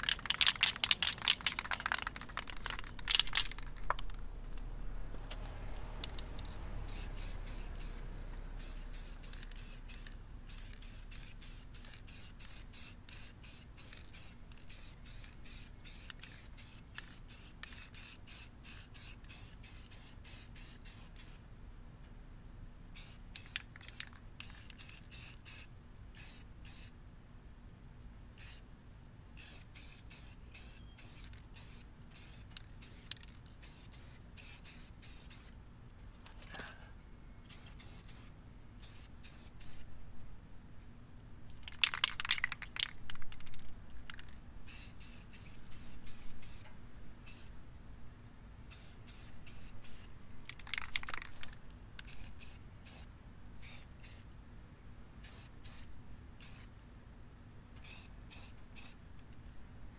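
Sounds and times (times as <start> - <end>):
spray paint can hissing: 0.0 - 4.6, 5.9 - 21.4, 22.9 - 26.9, 28.4 - 28.6, 29.3 - 35.6, 37.5 - 39.9, 41.6 - 46.6, 47.3 - 47.5, 48.7 - 54.3, 55.2 - 56.7, 57.8 - 59.0.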